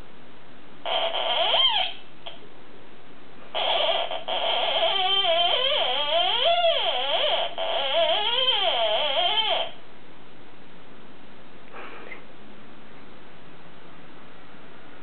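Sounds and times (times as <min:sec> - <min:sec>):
toy theremin warbling tone: 0:00.9 - 0:02.0, 0:03.6 - 0:09.7.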